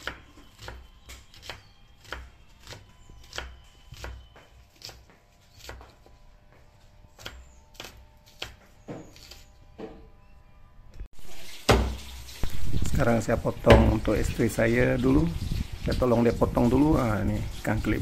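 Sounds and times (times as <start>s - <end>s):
knife chopping food: 0.0s - 6.1s, 7.1s - 10.0s, 11.7s - 12.1s, 13.6s - 14.1s.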